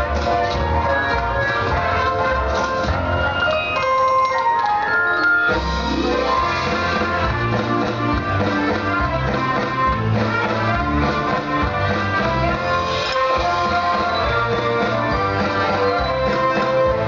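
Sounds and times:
bell-like notes: 0:03.0 - 0:06.6
guitar and drums music: 0:05.5 - 0:17.0.

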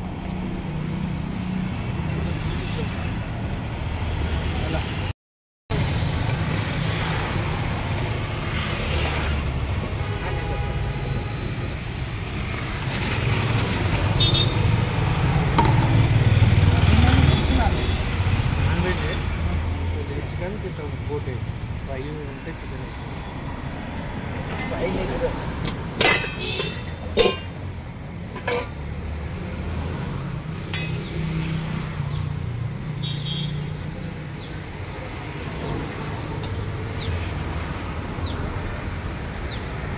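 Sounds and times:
road traffic rumble: 0:00.0 - 0:05.1, 0:05.7 - 0:39.9
metal ladle clinking against pot: 0:26.0 - 0:27.6, 0:28.3 - 0:28.8.

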